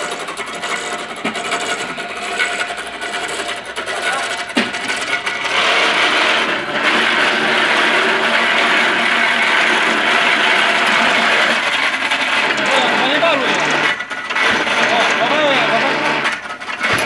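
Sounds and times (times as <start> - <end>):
engine-driven winch running: 0.0 - 17.0.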